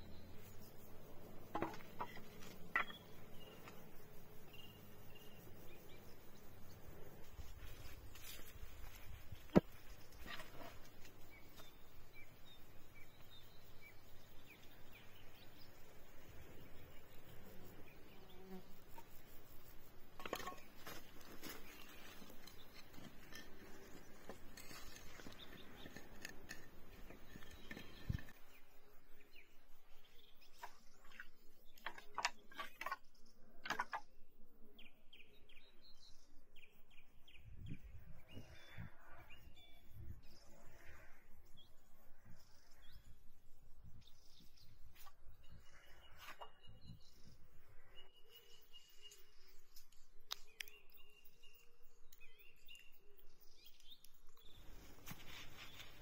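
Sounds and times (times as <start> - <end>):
birds chirping: 20.2 - 34.1.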